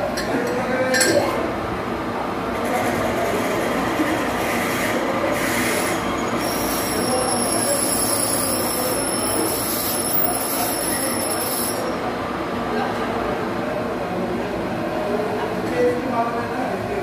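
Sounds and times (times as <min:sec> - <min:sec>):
lathe tool scraping metal: 0:04.6 - 0:12.0
high squeal: 0:05.4 - 0:12.1.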